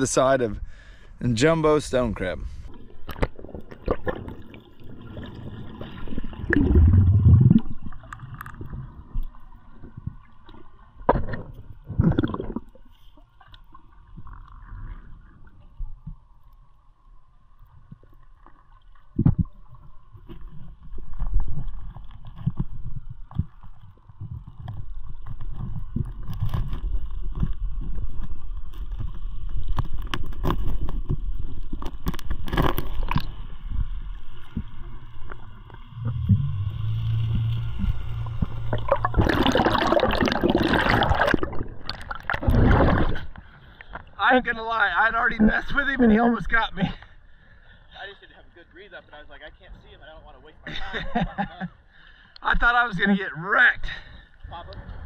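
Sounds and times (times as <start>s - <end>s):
underwater rumble and gurgling: 2.0s - 46.6s
water surge: 2.5s - 9.2s, 34.9s - 43.4s
rushing water: 2.6s - 11.1s, 31.8s - 44.0s
bubble bursts: 6.2s - 8.0s, 38.3s - 43.2s.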